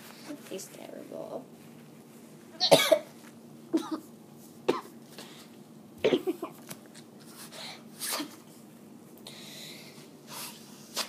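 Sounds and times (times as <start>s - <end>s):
child coughing into tissue: 2.6s - 4.1s, 4.7s - 5.0s, 6.0s - 6.6s, 8.0s - 8.5s.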